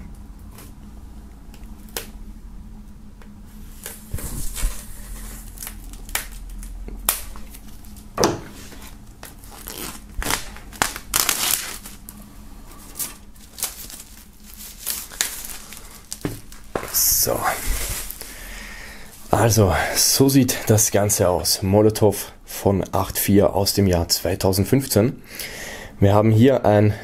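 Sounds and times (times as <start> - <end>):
plastic wrap crinkling: 3.8 - 18.4
knife cutting plastic wrap: 8.6 - 12.0, 12.9 - 18.2.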